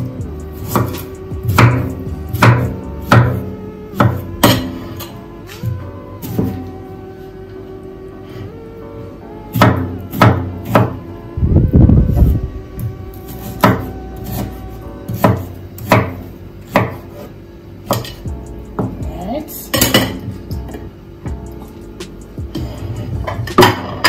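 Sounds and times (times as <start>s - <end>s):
knife chopping on wooden board: 0.6s - 3.4s, 4.0s - 5.0s, 5.6s - 6.6s, 9.5s - 11.0s, 13.3s - 18.2s.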